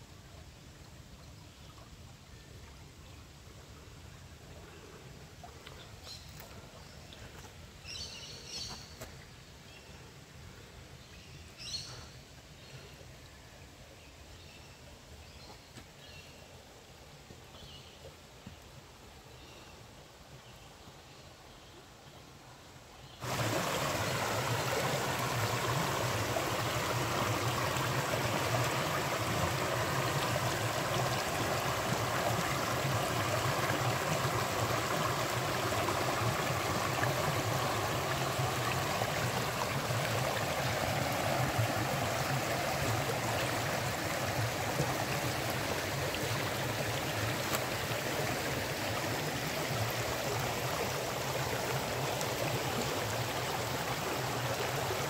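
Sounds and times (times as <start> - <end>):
running water: 23.2 - 55.0.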